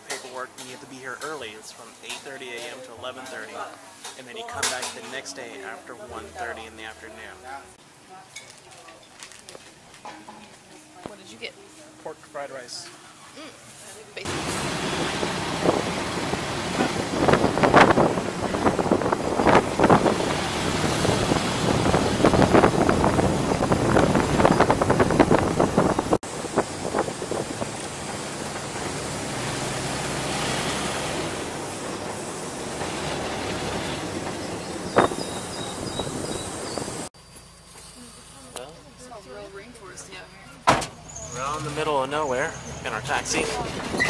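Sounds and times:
vehicle engine and road noise: 13.9 - 44.0
knocks and rattles: 15.2 - 35.8.

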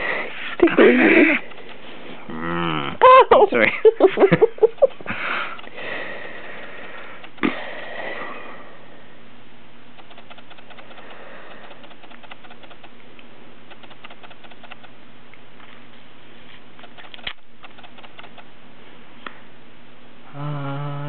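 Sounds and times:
low hum and hiss: 0.0 - 21.0
faint irregular ticking and clicks: 1.1 - 1.8, 6.8 - 7.6, 10.0 - 15.0, 16.8 - 18.5.

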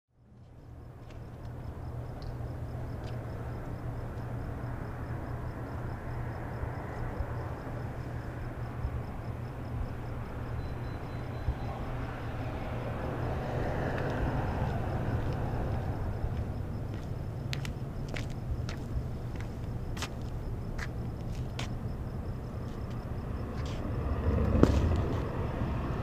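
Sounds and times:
low traffic hum: 0.2 - 26.0
vehicle passing: 3.4 - 26.0.

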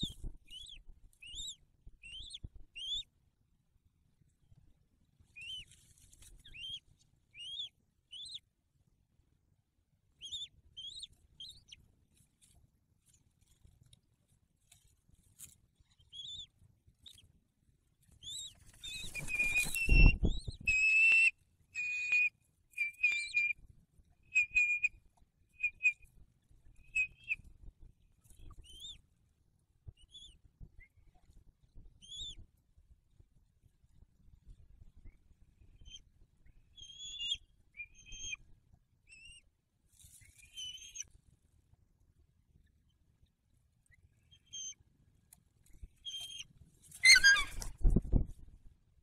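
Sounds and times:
eagles chirping: 0.0 - 3.0, 7.4 - 8.4, 18.2 - 23.6, 24.3 - 24.9, 25.6 - 26.0, 26.8 - 27.4, 36.8 - 38.4, 40.3 - 41.0, 46.0 - 47.7
rush of wings: 18.7 - 20.8
piping bird calls: 47.0 - 47.7.

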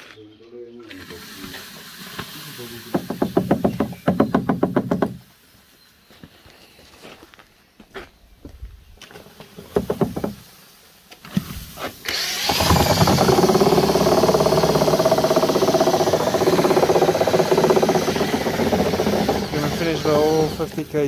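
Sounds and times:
power drill mixing: 0.9 - 5.2, 12.0 - 21.0
knocks and rustles: 2.9 - 5.3, 9.1 - 10.5, 11.2 - 20.9.

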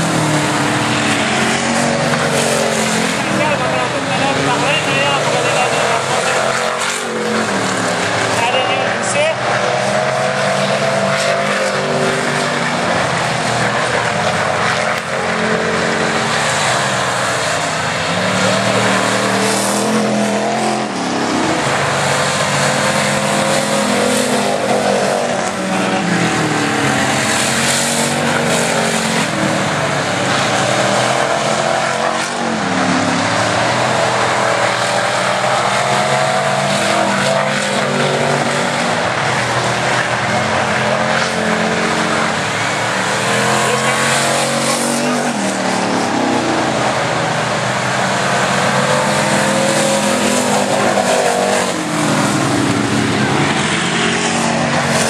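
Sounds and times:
race car engines revving: 0.0 - 55.0.

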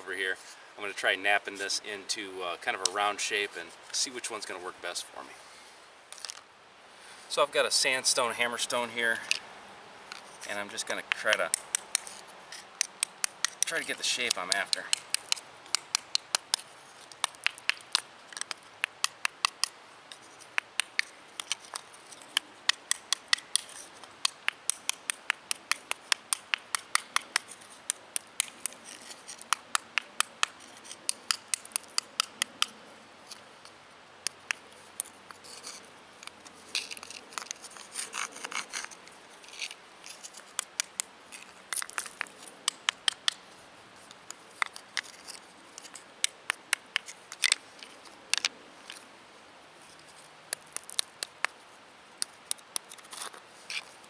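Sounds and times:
stone scraping on stone: 10.1 - 18.6, 19.6 - 32.6, 35.0 - 43.2, 52.2 - 53.9
stone tapping on slate: 11.1 - 12.2, 12.8 - 16.6, 17.2 - 19.7, 22.7 - 32.7.

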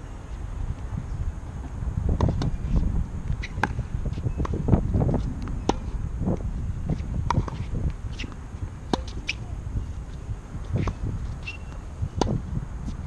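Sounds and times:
wind buffeting microphone: 0.0 - 13.0
tennis ball struck and bouncing: 3.5 - 3.8, 7.2 - 9.4, 10.7 - 12.4.

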